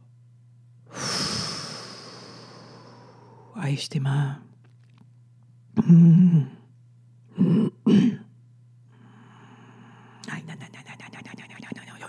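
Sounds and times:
steady low hum: 0:00.0 - 0:12.0
person's sighing vocal sounds: 0:00.9 - 0:03.5.

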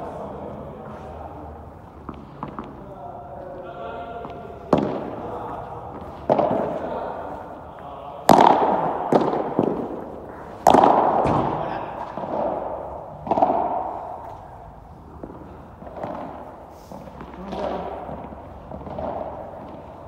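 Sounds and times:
ball popping off rackets: 0:08.2 - 0:14.4.

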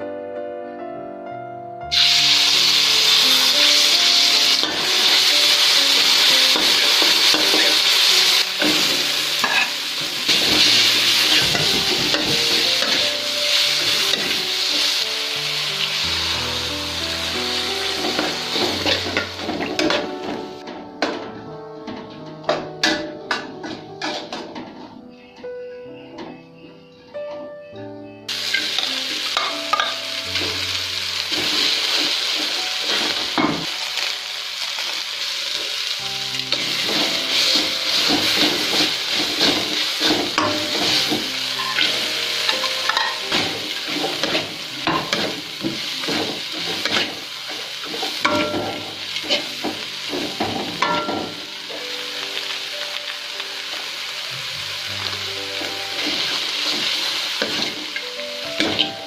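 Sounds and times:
vegetables sizzling in hot oil: 0:01.9 - 0:20.6, 0:28.3 - 0:59.0
spatula scraping a wok: 0:24.0 - 0:24.4, 0:36.5 - 0:51.0.

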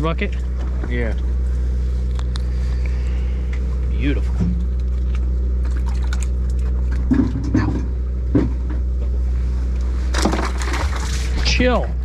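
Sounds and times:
boat engine droning: 0:00.0 - 0:12.0
knocks and clatters on deck: 0:07.1 - 0:08.8.

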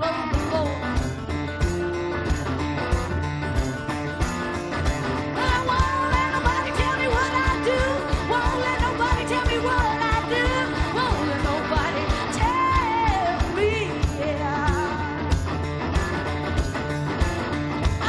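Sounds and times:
woman singing: 0:00.0 - 0:01.0, 0:05.4 - 0:15.4
strummed acoustic guitars: 0:00.0 - 0:18.0.

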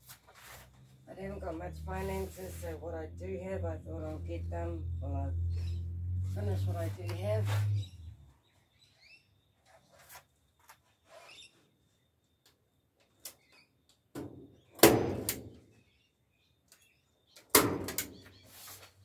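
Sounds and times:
faint bird chirps: 0:10.8 - 0:14.0.

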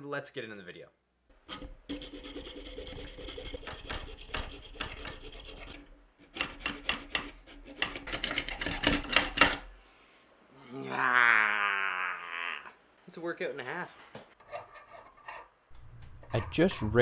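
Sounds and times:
hacksaw rasping on metal: 0:01.5 - 0:09.7, 0:14.4 - 0:15.5.

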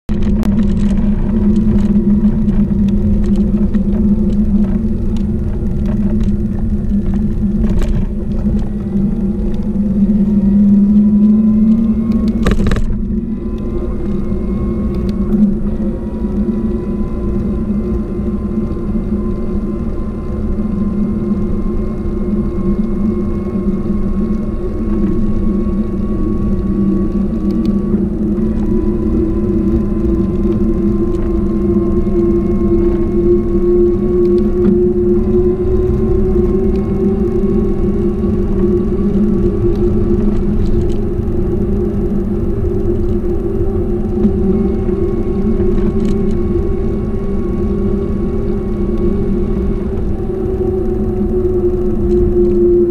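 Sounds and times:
wind rumble on microphone: 0:00.0 - 0:52.9
faint motor whine: 0:00.1 - 0:52.9
steady hum: 0:00.1 - 0:52.9.

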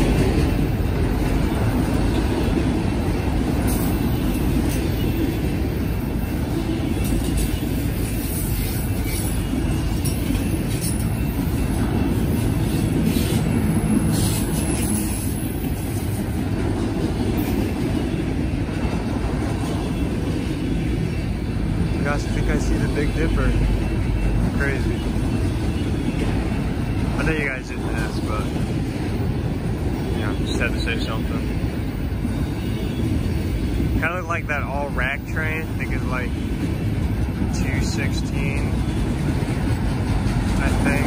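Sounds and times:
train cars rumbling on rails: 0:00.0 - 0:41.0
wheel squeals: 0:06.2 - 0:16.3.

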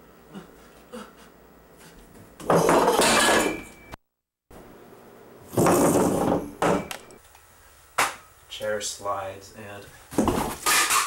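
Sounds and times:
chair legs scraping on tile: 0:05.5 - 0:06.4.

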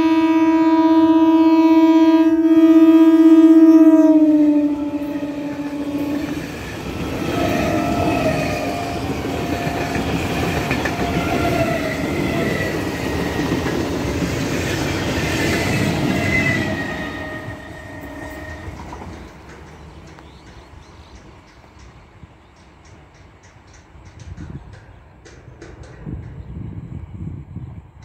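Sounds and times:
train horn blast: 0:00.0 - 0:12.5, 0:15.5 - 0:19.0
train wheels clattering on rail: 0:04.5 - 0:28.0.

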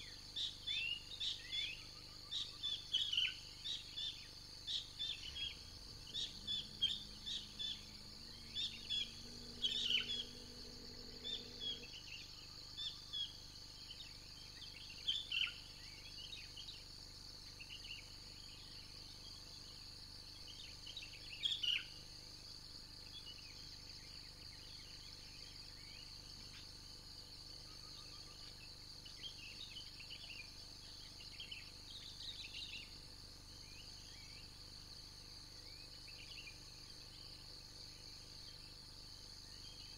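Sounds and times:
high-pitched insect drone: 0:00.0 - 0:16.8
small birds chirping: 0:00.0 - 0:16.9, 0:20.4 - 0:22.0.

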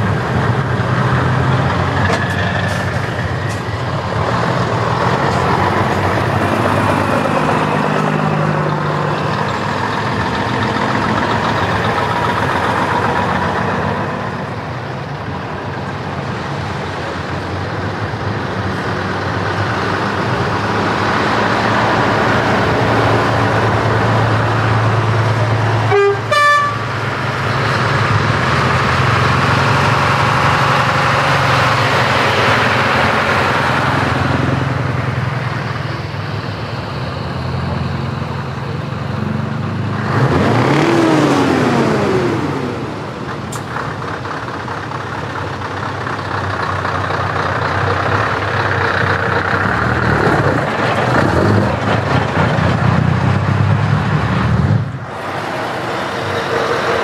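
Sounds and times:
heavy trucks driving past: 0:00.0 - 0:57.0
air horn toot: 0:25.9 - 0:26.9.

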